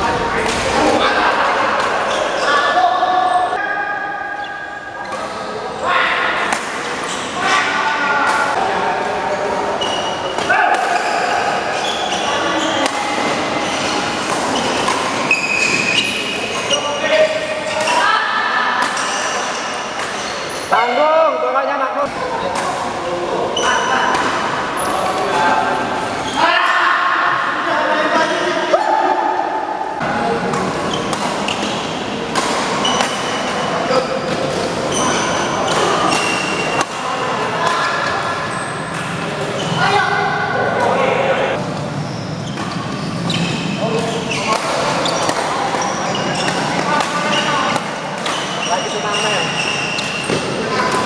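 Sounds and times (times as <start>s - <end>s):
shoes squeaking on court floor: 1.8s - 3.6s, 6.8s - 7.7s, 9.5s - 18.2s, 18.8s - 20.8s, 23.5s - 26.5s, 30.3s - 40.0s, 40.7s - 51.0s
rackets striking shuttlecock: 12.8s - 16.7s, 30.5s - 33.6s, 42.5s - 48.8s.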